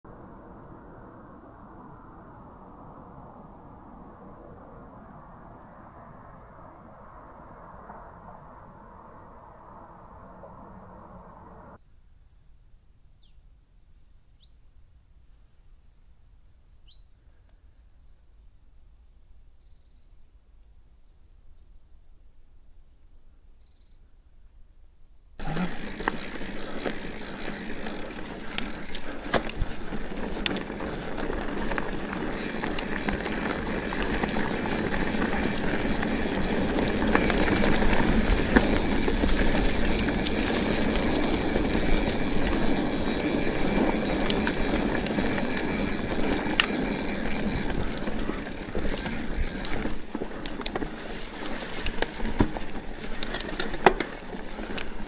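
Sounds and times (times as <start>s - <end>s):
bike tyres rolling over trail: 0.1s - 11.8s, 25.4s - 55.0s
faint bird chirps: 11.8s - 13.5s, 19.5s - 25.1s
bike rattling and knocking: 25.4s - 55.0s.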